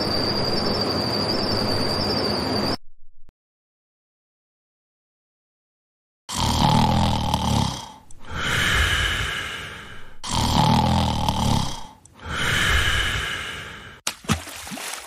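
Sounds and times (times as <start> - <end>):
person snoring: 6.3 - 14.0.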